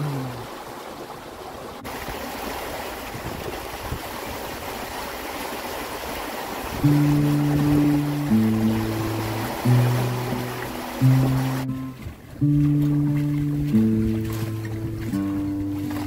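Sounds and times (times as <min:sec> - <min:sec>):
water rushing along hull: 0:00.0 - 0:16.0
background music with sustained chords: 0:06.8 - 0:16.0.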